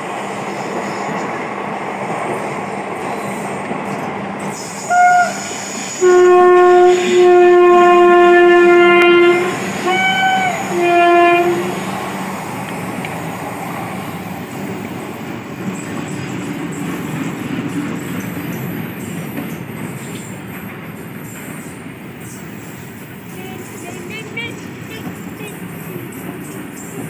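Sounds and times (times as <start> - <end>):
freight train rumbling: 0.0 - 27.0
locomotive air horn: 4.8 - 11.8.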